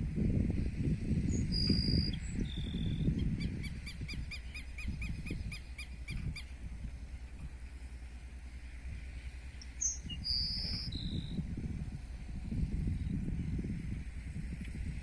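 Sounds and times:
low rumbling noise: 0.0 - 15.0
bird singing whistles and trill: 1.3 - 6.5, 9.8 - 11.4.

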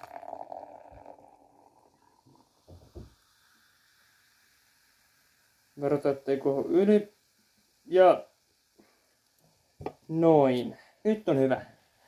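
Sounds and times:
cola pouring and fizzing: 0.0 - 10.1.

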